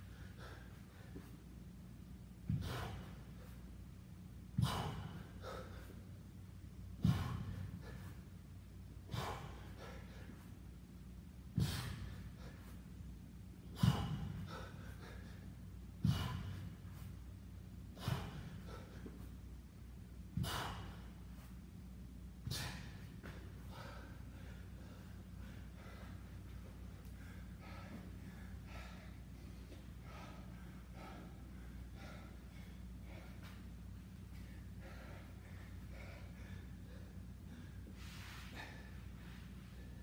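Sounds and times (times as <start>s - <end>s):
man exhaling forcefully: 2.5s - 3.3s, 4.6s - 5.9s, 7.0s - 8.1s, 9.1s - 10.3s, 11.5s - 12.7s, 13.7s - 15.3s, 16.0s - 16.8s, 18.0s - 19.1s, 20.4s - 21.2s, 22.4s - 24.0s.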